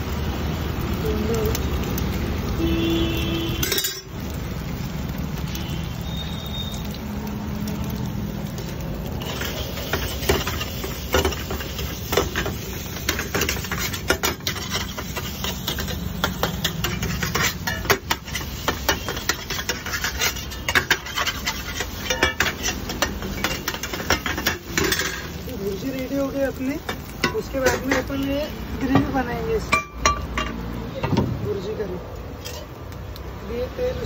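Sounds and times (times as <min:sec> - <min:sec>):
metal spatula scraping a pan: 0:09.2 - 0:26.0, 0:26.8 - 0:28.3.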